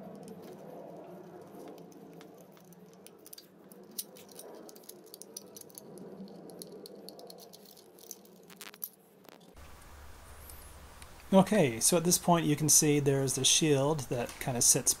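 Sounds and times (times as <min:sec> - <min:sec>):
faint steady hum: 0:00.0 - 0:15.0
screwdriver and screws rattling: 0:01.3 - 0:09.0.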